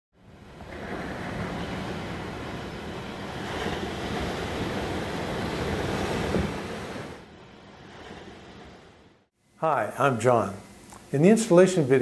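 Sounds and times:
ocean waves breaking on rocks: 0.2s - 9.3s.

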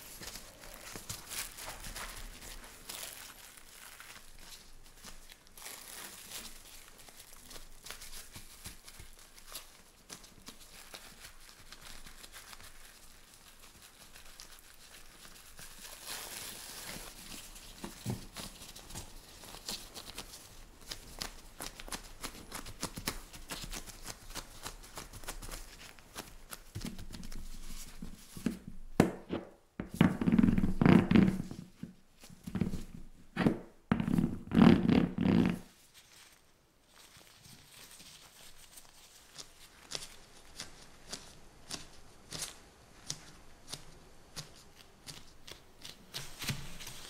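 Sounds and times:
plastic wrap crinkling: 0.0s - 47.0s.

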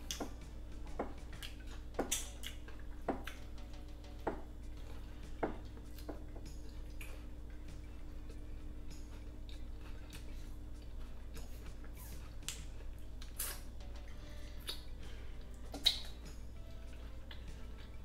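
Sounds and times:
steady low hum: 0.0s - 18.0s
wet lip smacks and chewing: 1.3s - 3.4s, 9.0s - 13.7s, 14.6s - 14.9s, 15.5s - 16.3s.

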